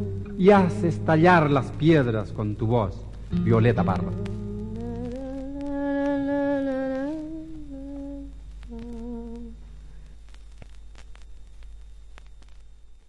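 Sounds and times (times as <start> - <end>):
person humming a slow tune: 0.0 - 0.9, 3.3 - 9.8
faint clicks: 8.0 - 12.8.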